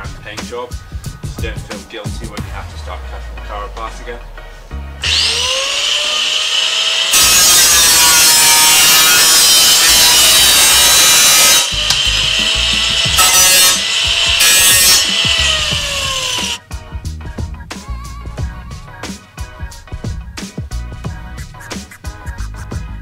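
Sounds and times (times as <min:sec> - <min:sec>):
angle grinder cutting steel: 0:05.0 - 0:16.6
grinder disc spinning down: 0:05.0 - 0:16.6.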